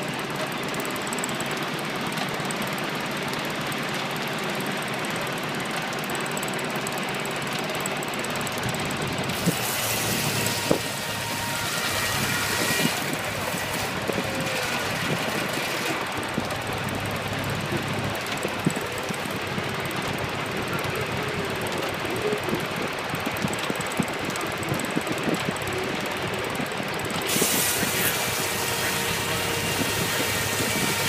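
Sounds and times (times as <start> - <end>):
sawmill running: 0.0 - 31.0
saw blade hissing through log: 9.4 - 16.0, 27.3 - 31.0.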